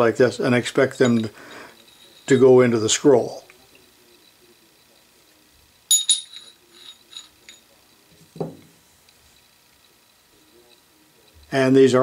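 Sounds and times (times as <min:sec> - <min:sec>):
metal jaw clinking on steel: 0:05.9 - 0:07.6.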